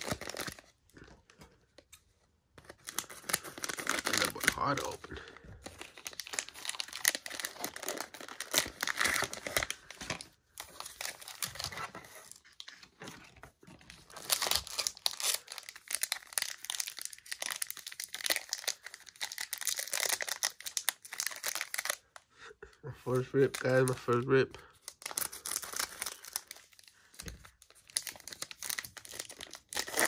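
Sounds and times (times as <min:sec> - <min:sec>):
wrappers crinkling and tearing: 0:00.0 - 0:01.1, 0:02.6 - 0:22.1, 0:23.1 - 0:30.0.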